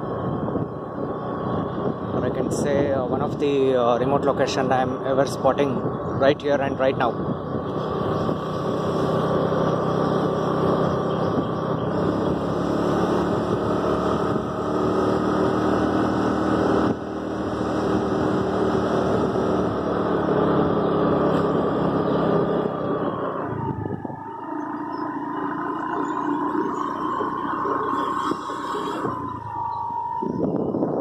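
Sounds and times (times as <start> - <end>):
scooter engine running: 7.1 - 30.4.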